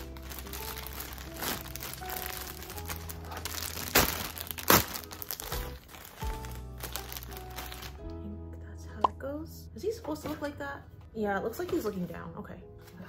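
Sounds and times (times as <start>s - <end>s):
plastic bag crinkling: 0.0s - 8.1s
background music: 0.0s - 13.0s.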